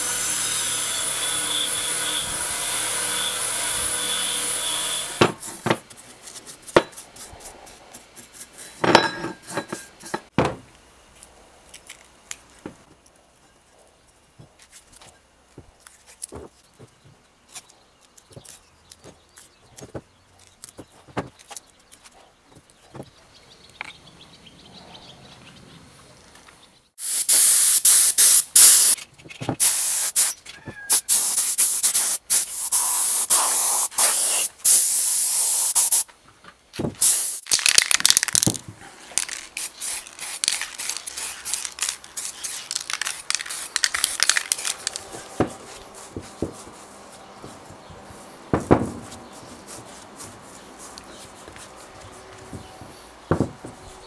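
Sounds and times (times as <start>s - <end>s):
paint spray gun hissing: 27.0s - 29.0s, 29.6s - 30.4s, 31.0s - 36.0s, 37.0s - 37.4s, 39.2s - 47.0s.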